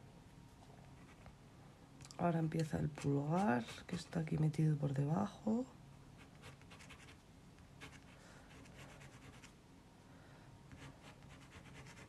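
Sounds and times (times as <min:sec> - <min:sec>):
pencil scratching on paper: 0:06.2 - 0:07.2, 0:07.8 - 0:09.5, 0:10.7 - 0:12.0.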